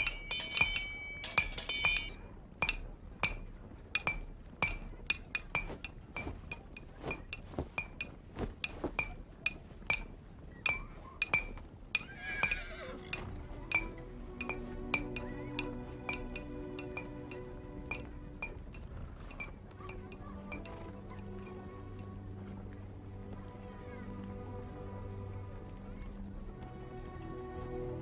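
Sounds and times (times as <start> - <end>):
hammer striking anvil: 0.0 - 9.2, 10.7 - 12.6, 13.7 - 20.8
music: 0.0 - 28.0.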